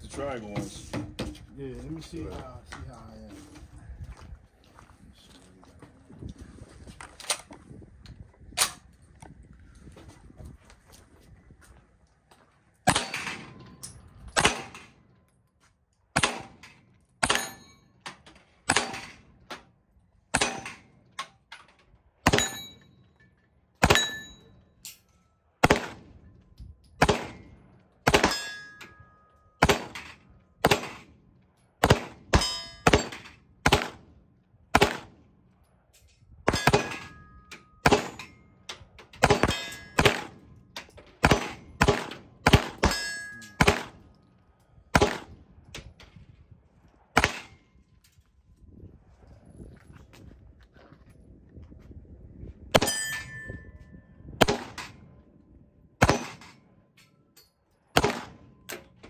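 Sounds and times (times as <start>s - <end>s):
gunshots: 12.9s - 13.6s, 14.4s - 15.0s, 16.1s - 17.6s, 18.6s - 19.4s, 20.3s - 21.0s, 22.2s - 22.8s, 23.8s - 24.4s, 25.6s - 26.2s, 27.0s - 28.6s, 29.6s - 31.2s, 31.8s - 34.1s, 34.7s - 35.2s, 36.5s - 37.2s, 37.8s - 38.3s, 39.2s - 40.5s, 41.2s - 44.0s, 44.9s - 45.4s, 47.1s - 47.6s, 54.4s - 55.0s, 56.0s - 56.6s, 57.9s - 58.8s
steel plate ringing clang: 17.2s - 18.0s, 22.3s - 23.0s, 23.8s - 25.0s, 28.2s - 29.2s, 32.4s - 33.3s, 36.5s - 38.6s, 39.3s - 40.1s, 42.8s - 43.7s, 52.8s - 53.8s.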